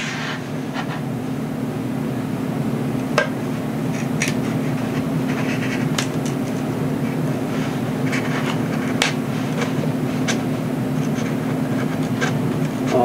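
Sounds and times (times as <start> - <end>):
steady low hum: 0.0 - 13.0
knife scraping wood: 3.9 - 6.0, 7.5 - 13.0.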